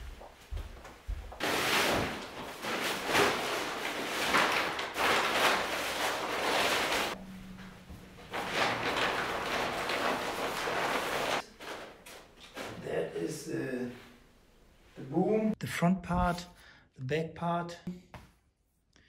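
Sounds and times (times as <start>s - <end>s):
fabric canopy rustling: 0.6s - 12.9s.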